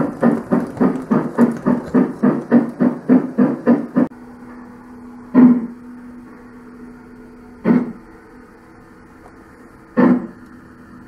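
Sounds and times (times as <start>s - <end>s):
model steam locomotive chuffs: 0.0s - 4.1s
steady low hum: 0.0s - 11.0s.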